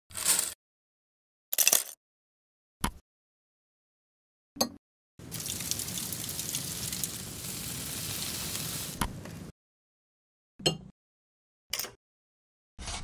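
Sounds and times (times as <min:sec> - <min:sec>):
food sizzling and crackling: 0:05.2 - 0:09.5.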